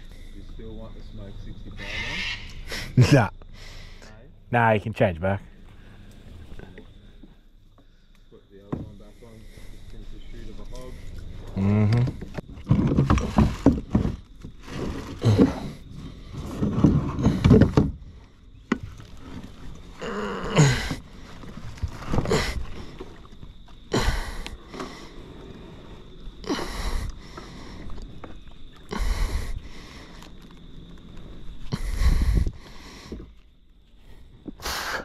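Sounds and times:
man breathing hard: 0:02.6 - 0:04.1, 0:23.9 - 0:28.0, 0:28.9 - 0:30.4, 0:31.6 - 0:33.4, 0:34.0 - 0:35.0.

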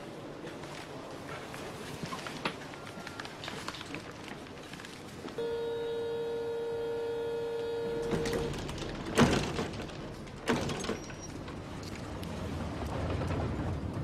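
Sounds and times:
steady buzzing tone: 0:05.4 - 0:08.5.

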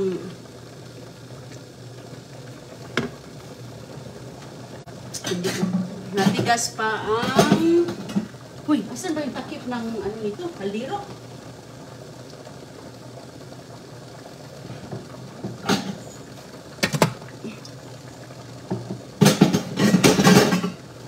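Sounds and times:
low kitchen hum: 0:00.0 - 0:21.0
pot lids clattering: 0:19.2 - 0:20.8.

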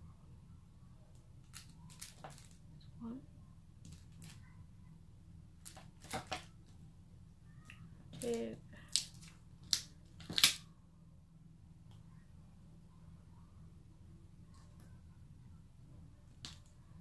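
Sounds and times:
small gems clicking and tapping: 0:01.4 - 0:02.6.

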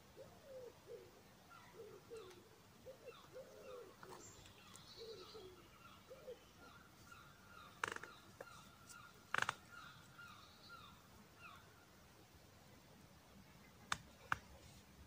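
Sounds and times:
birds chirping: 0:00.2 - 0:12.0.

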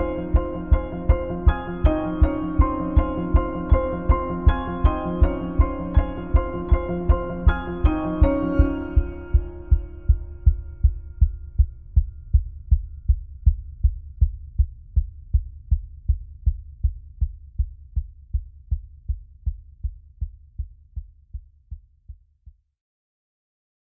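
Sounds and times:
low pulsing music beat: 0:00.0 - 0:17.3.

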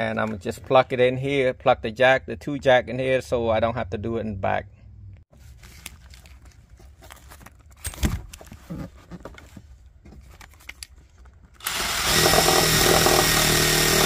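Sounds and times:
parts being handled: 0:05.3 - 0:11.6
cordless drill whirring: 0:11.6 - 0:14.0.

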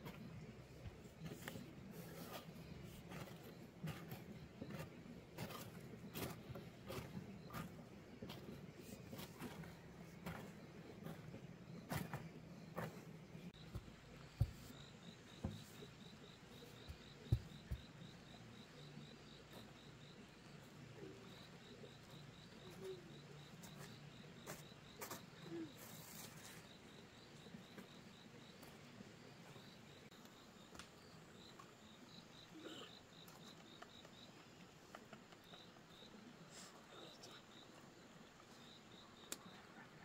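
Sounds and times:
insect chirping: 0:09.3 - 0:40.0.

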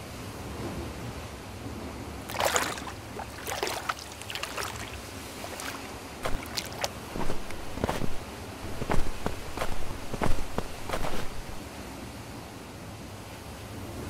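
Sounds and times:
footsteps crunching in snow: 0:02.3 - 0:11.6
footsteps splashing through water: 0:02.3 - 0:11.6.

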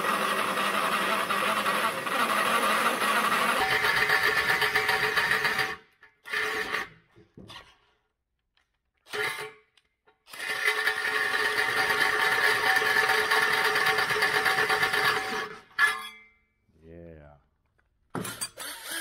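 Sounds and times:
cordless drill cutting with hole saw: 0:00.0 - 0:07.0, 0:09.1 - 0:09.6, 0:10.3 - 0:15.9, 0:18.2 - 0:19.0.

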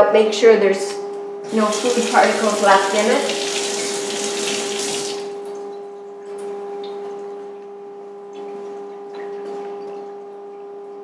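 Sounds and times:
steady hum: 0:00.0 - 0:11.0
sink faucet shutting off: 0:01.5 - 0:05.4
water drips: 0:01.5 - 0:07.3.

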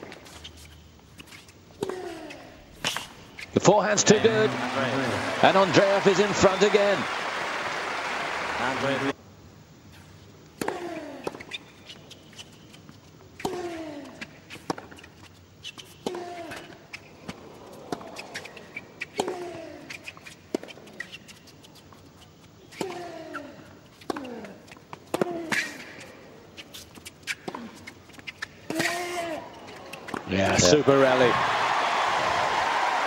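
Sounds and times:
racket hitting tennis ball: 0:16.0 - 0:20.8, 0:24.0 - 0:26.1, 0:27.2 - 0:30.3.

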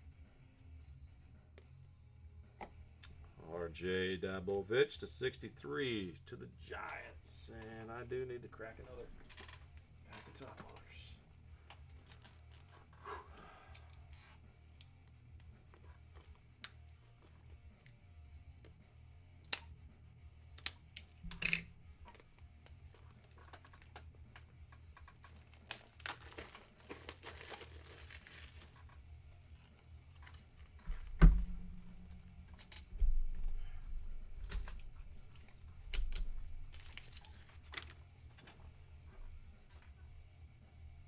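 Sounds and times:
plastic wrapping crinkling and tearing: 0:11.9 - 0:12.8, 0:25.0 - 0:30.7, 0:31.6 - 0:38.0.

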